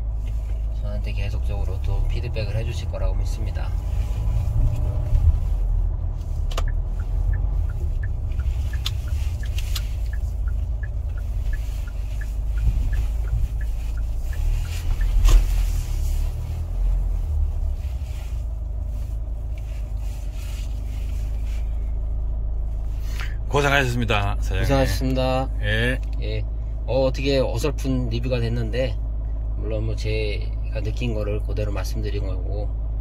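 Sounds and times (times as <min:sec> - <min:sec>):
low engine and road rumble: 0:00.0 - 0:33.0
turn-signal relay ticking: 0:06.6 - 0:15.4.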